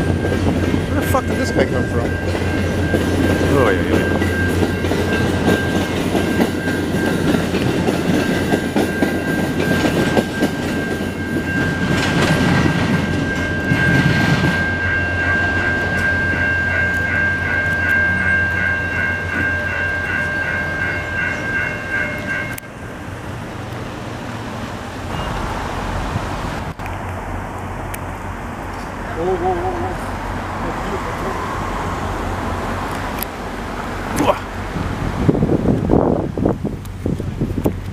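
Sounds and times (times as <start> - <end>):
train wheels clacking over rails: 0.0 - 22.6
high ringing tone: 0.0 - 23.2, 25.1 - 25.6.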